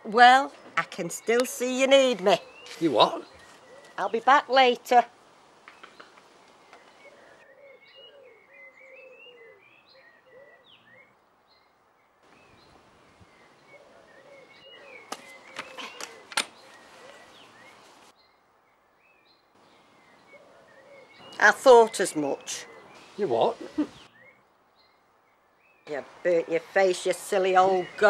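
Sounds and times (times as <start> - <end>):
background hiss: 0.0 - 9.5, 10.3 - 28.0
small birds chirping: 0.0 - 28.0
sharp clicks: 5.6 - 6.9, 15.1 - 16.6.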